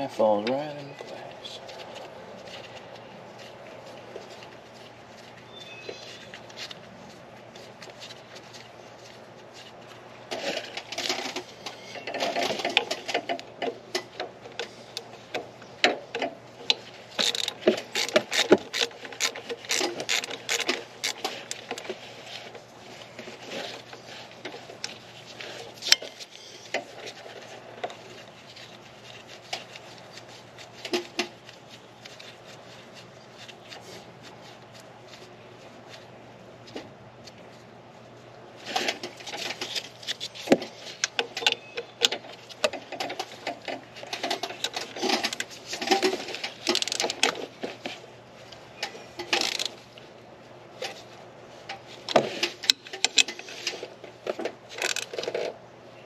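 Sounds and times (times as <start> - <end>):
hand ratchet clicking: 17.2 - 21.8.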